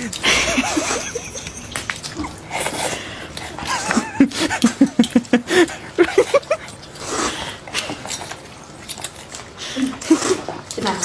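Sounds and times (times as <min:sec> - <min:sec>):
person giggling: 0:00.0 - 0:02.9, 0:03.6 - 0:06.6
slurping and chewing noodles: 0:00.0 - 0:11.0.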